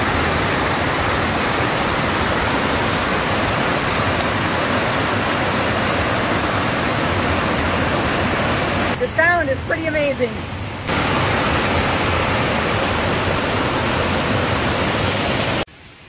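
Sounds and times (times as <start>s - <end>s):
waterfall rushing over rocks: 0.0s - 16.0s.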